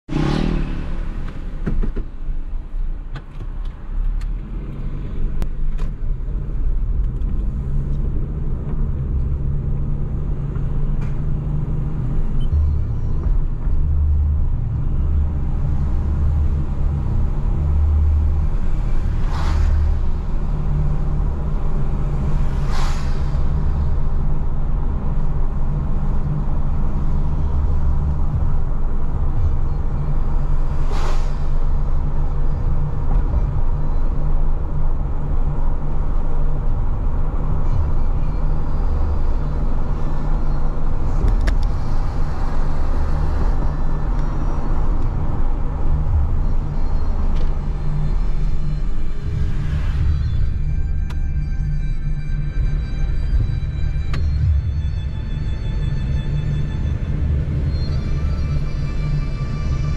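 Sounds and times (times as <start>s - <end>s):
engine and tyre rumble: 0.0s - 59.9s
brief swishes: 30.8s - 31.8s.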